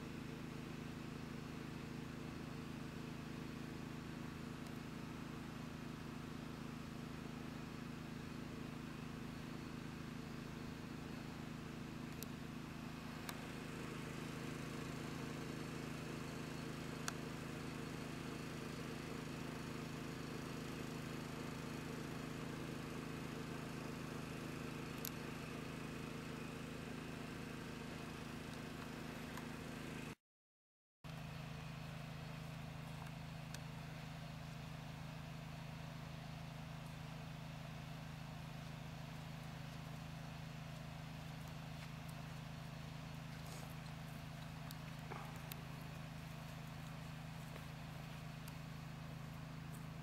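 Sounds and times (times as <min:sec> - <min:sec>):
low hum: 0:31.1 - 0:50.0.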